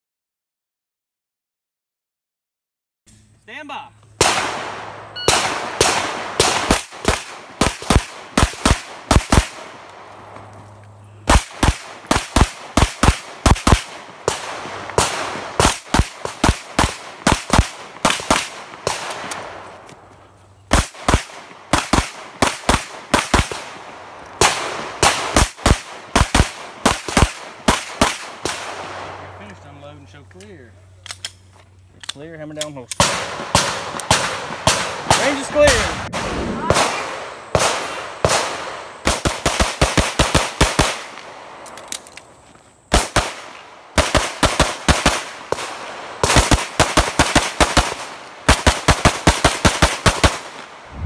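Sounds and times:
pistol shots with echo: 4.2s - 9.8s, 11.2s - 19.6s, 33.0s - 41.6s, 42.9s - 50.8s.

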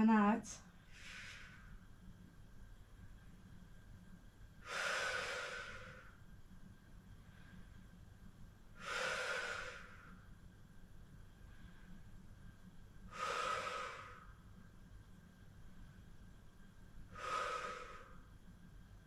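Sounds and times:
woman exhaling hard: 13.1s - 14.2s.

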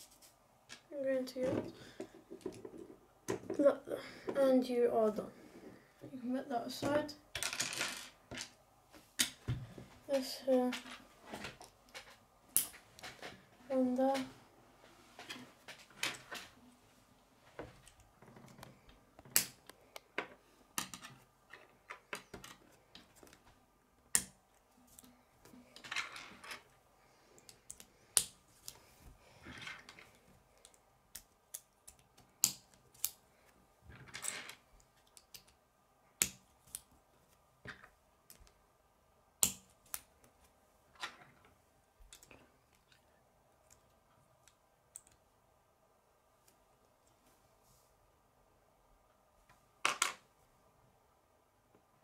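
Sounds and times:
plastic pieces clicking together: 34.2s - 35.6s.

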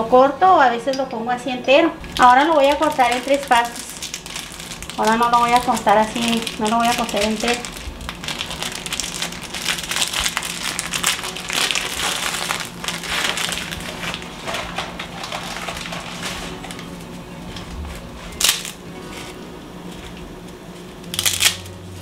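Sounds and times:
plastic packet crinkling: 2.0s - 17.1s, 18.3s - 18.8s, 21.1s - 21.7s.

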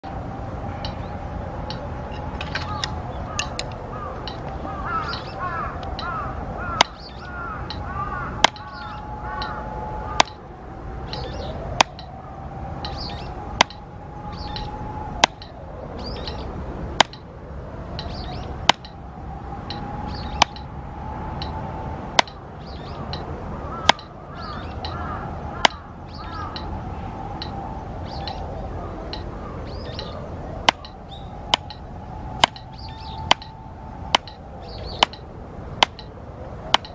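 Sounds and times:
birds chirping: 0.0s - 36.9s
drumstick tapping practice pad: 6.8s - 7.1s, 7.7s - 8.8s, 10.2s - 10.4s, 11.8s - 12.1s, 13.6s - 13.8s, 15.2s - 15.6s, 17.0s - 17.3s, 18.0s - 19.0s, 19.7s - 20.7s, 22.2s - 22.4s, 23.8s - 24.1s, 30.6s - 31.8s, 32.4s - 33.5s, 34.1s - 35.2s, 35.8s - 36.1s.

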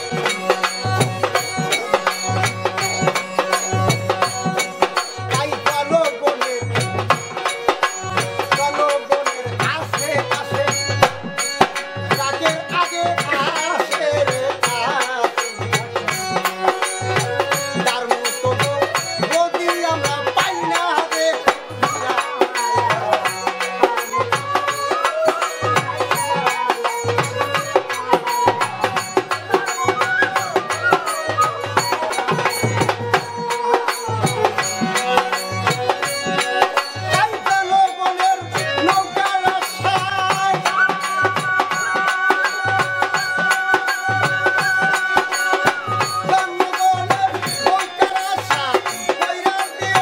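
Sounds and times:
hand drum beat: 0.0s - 50.0s.

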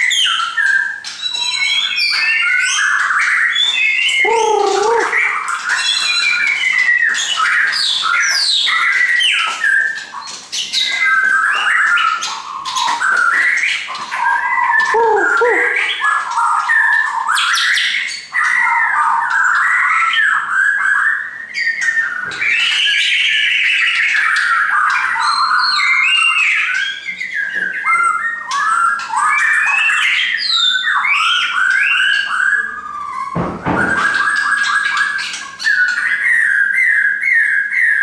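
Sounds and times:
bird singing whistled notes: 0.0s - 38.0s.

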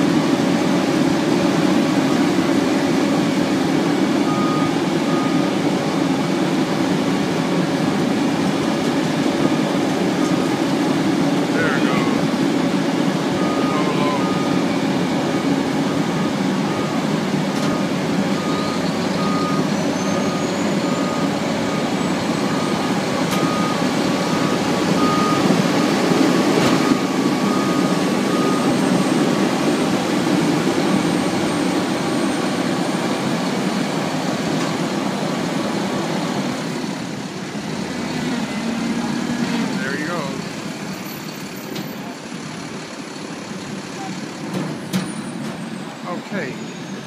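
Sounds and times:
heavy truck engines running: 0.0s - 47.0s
reversing alarm beeping: 4.2s - 6.0s, 13.3s - 33.2s.

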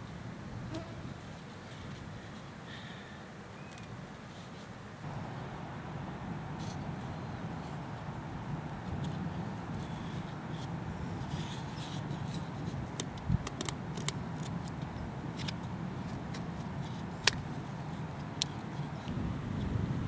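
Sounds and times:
low outdoor rumble: 5.0s - 13.4s.

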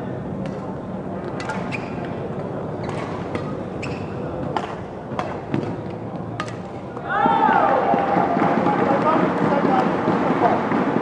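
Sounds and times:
steady background noise: 0.0s - 11.0s
racket hitting shuttlecock: 0.4s - 11.0s
shoes squeaking on court: 1.4s - 4.4s.

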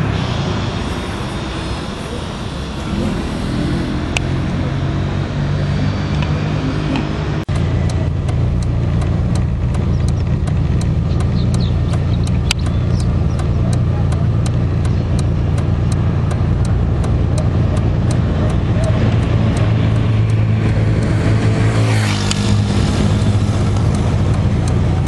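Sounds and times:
loud low rumble: 0.0s - 25.0s
quick regular ticking: 7.4s - 25.0s.

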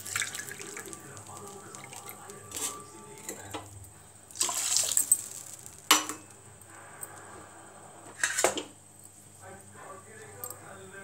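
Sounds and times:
tempering bubbling in a pan: 0.0s - 9.4s.

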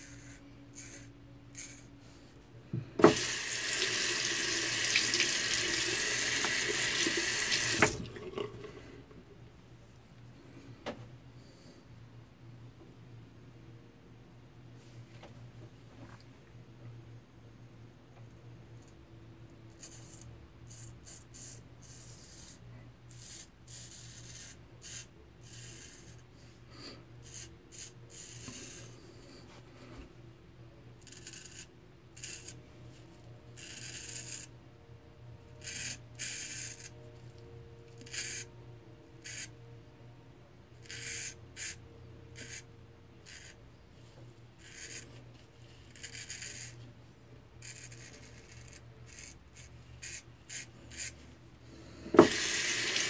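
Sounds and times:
razor scraping stubble: 0.0s - 1.9s, 31.0s - 32.6s, 37.9s - 38.5s, 39.2s - 39.5s, 40.8s - 41.8s, 42.4s - 43.6s, 44.6s - 46.8s, 47.6s - 51.2s.

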